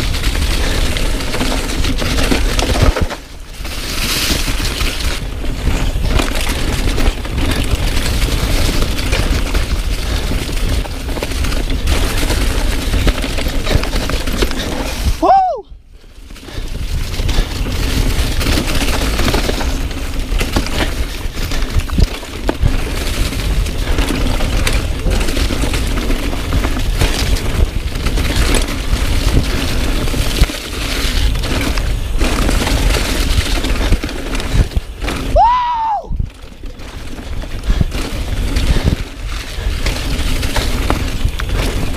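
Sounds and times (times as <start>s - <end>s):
bike clattering and rattling: 0.0s - 41.9s
bike tyre roar: 0.0s - 41.9s
wind on microphone: 20.5s - 41.9s.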